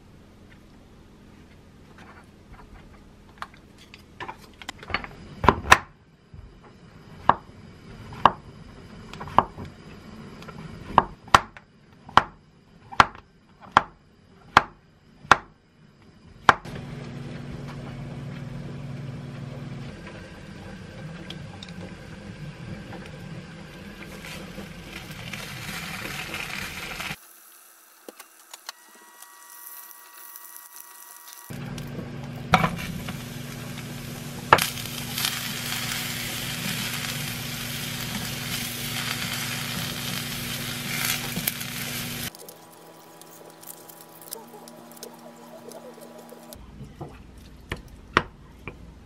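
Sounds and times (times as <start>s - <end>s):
frying pan hissing: 23.8s - 31.7s, 32.4s - 46.6s
low hum: 28.8s - 49.0s.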